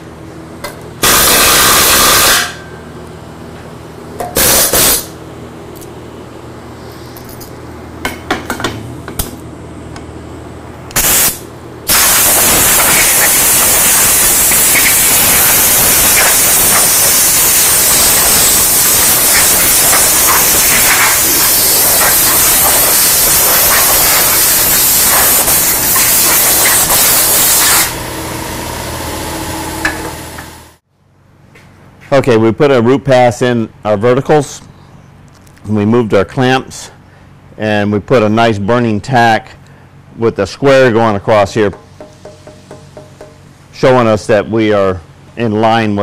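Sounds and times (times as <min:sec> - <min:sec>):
welding arc crackling: 0:01.0 - 0:02.6, 0:10.9 - 0:28.0.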